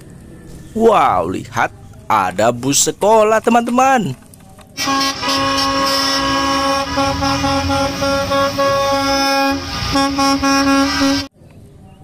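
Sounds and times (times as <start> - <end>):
bus horn blasts: 4.8 - 11.3
buses passing on wet road: 4.8 - 11.3.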